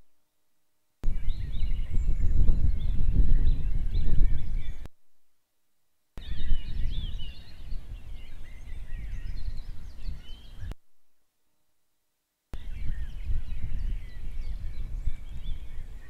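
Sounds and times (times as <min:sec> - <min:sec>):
birds chirping and calling: 0:01.0 - 0:04.9, 0:06.2 - 0:10.8, 0:12.6 - 0:16.0
low wind rumble: 0:01.0 - 0:04.9, 0:06.2 - 0:10.8, 0:12.6 - 0:16.0.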